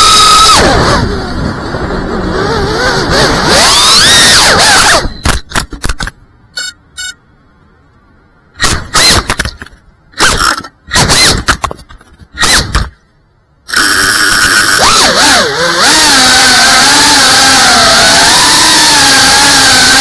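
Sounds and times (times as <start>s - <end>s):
drone motors spinning up: 0.0s - 5.3s, 13.7s - 20.0s
drone motors whining: 0.0s - 5.4s, 13.7s - 20.0s.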